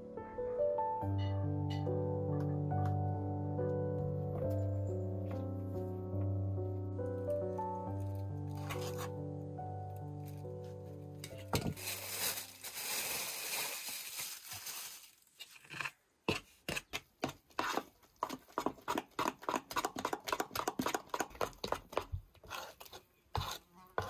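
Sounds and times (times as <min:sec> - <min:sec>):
rustling: 0:11.3 - 0:15.9.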